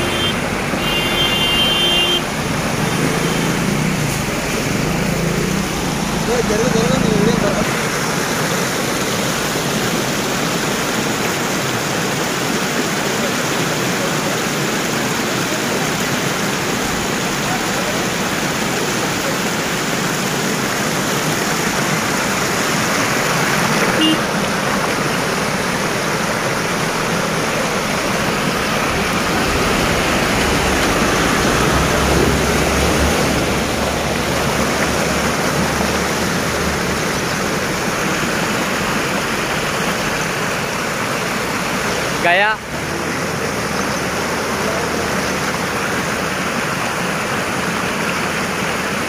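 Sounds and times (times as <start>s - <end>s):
floodwater rushing across road: 0.0s - 49.0s
water pushed by truck: 0.0s - 49.0s
truck engine rumble: 16.7s - 40.5s.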